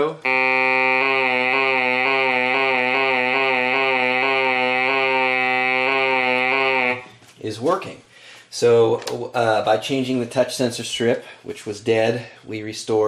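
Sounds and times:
synthesizer sustained note with vibrato: 0.2 - 7.1.

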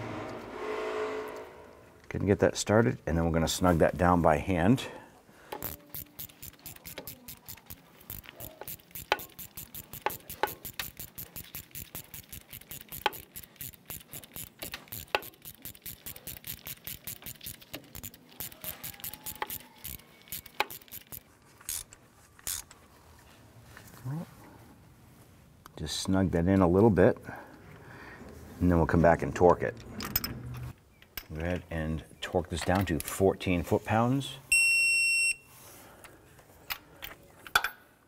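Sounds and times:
ratchet clicking: 5.5 - 22.7.

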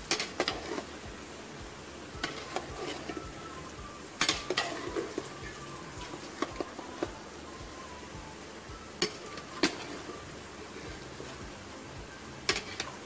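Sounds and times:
soft frying sizzle: 0.0 - 13.0
metal spoon scraping a pot: 12.5 - 12.9.

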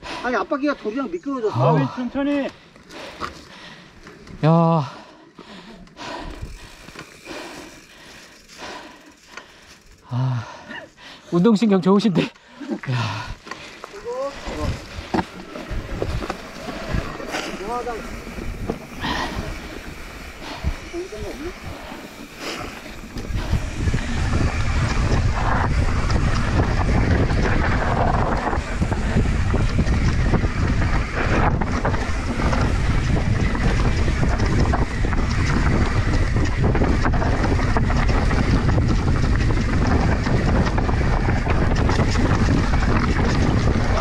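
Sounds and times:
bike rattling over bumps: 1.5 - 44.0
tyres rumbling on dirt: 12.8 - 44.0
wind buffeting microphone: 12.9 - 44.0.

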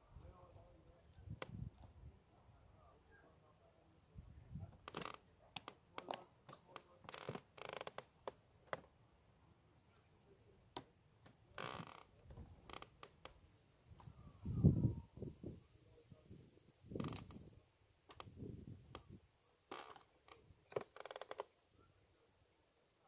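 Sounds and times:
small tackle clicks: 4.8 - 8.9, 17.0 - 17.4, 19.7 - 21.6.

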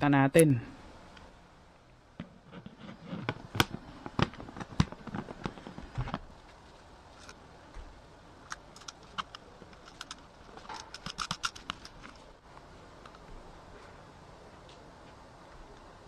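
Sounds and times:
small nut clicks: 8.5 - 12.1.

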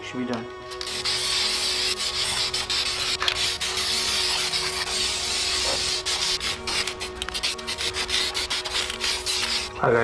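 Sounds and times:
aerosol spray can hissing: 0.7 - 9.7.

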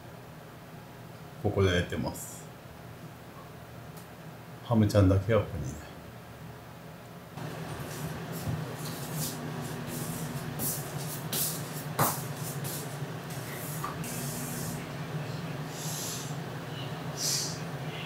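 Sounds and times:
hair dryer humming: 7.4 - 16.4.

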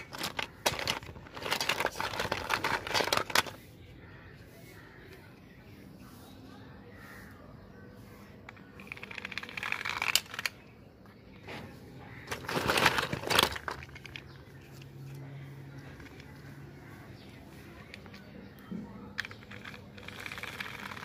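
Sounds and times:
plastic toys clattering: 0.0 - 3.6, 8.5 - 10.7, 11.3 - 15.2, 15.8 - 21.0
plastic toys rattling: 0.0 - 3.6, 8.5 - 10.7, 12.1 - 15.2, 15.8 - 21.0.

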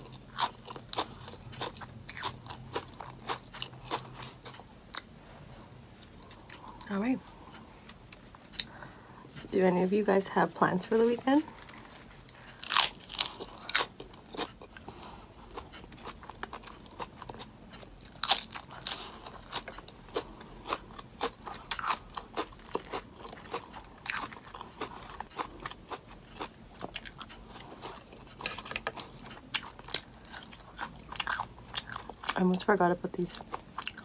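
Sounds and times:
soft chewing: 0.0 - 9.6, 10.9 - 34.0
crunching lettuce bites: 11.5 - 14.9, 15.6 - 32.4.

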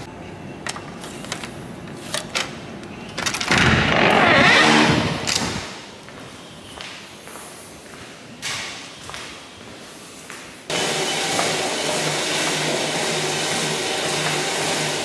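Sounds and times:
glass door whirring open: 3.1 - 5.7.

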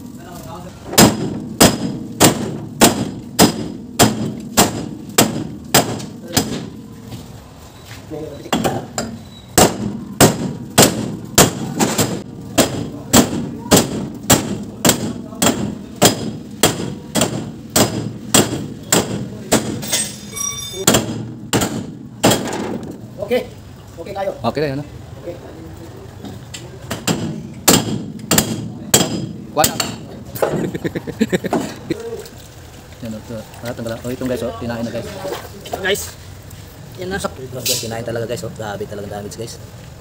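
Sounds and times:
metallic ringing: 19.8 - 20.9.

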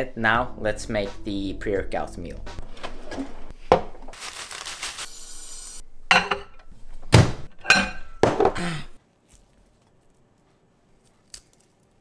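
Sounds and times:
dishes clinking: 6.1 - 6.6, 7.6 - 8.6.

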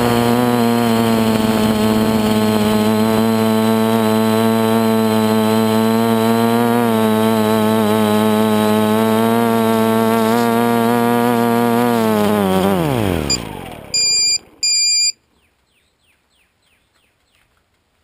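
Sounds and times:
drone motors buzzing: 0.0 - 15.2
short electronic beeps: 13.3 - 15.2.

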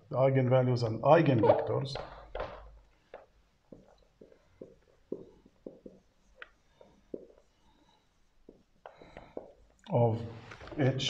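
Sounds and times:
marker squeak: 1.4 - 2.4
marker pen writing on whiteboard: 1.4 - 9.8.

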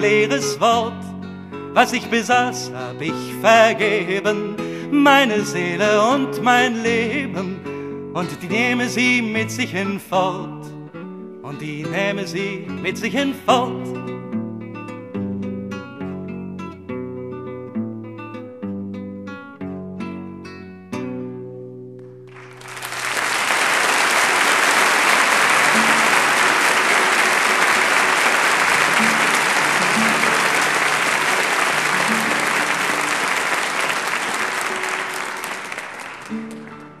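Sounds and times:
plucked acoustic guitar notes: 0.0 - 22.3, 28.7 - 33.2, 36.3 - 37.0
audience applause: 22.3 - 37.0.

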